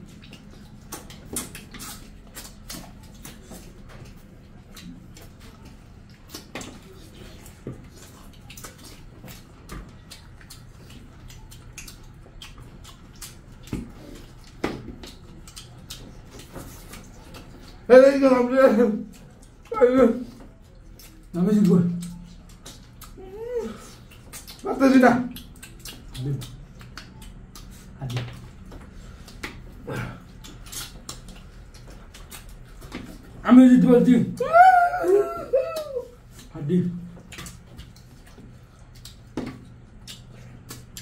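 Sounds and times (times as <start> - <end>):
low steady hum: 0.0 - 41.0
wet chewing and mouth clicks: 0.0 - 41.0
loud mouth smacks: 25.3 - 33.2, 37.2 - 41.0.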